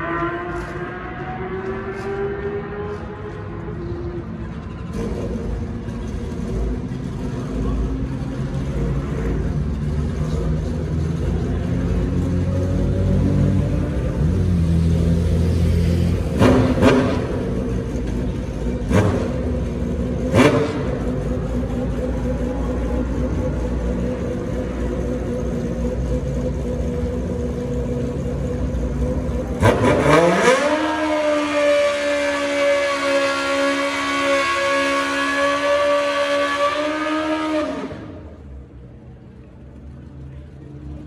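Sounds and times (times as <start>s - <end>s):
motorcycle engine revving: 0.0s - 38.4s.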